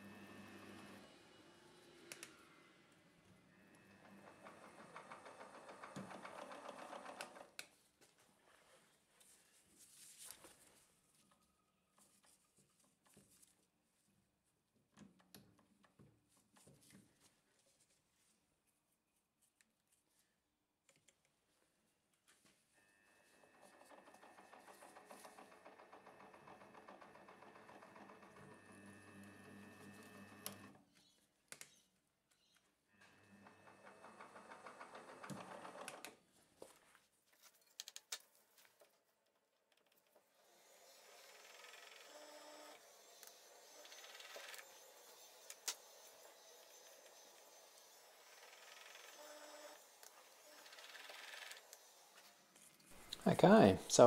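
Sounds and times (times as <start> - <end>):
drill spindle motor humming: 0.0 - 2.5, 40.4 - 52.6
mill spindle whirring: 3.5 - 7.5, 23.4 - 30.8, 40.4 - 52.5.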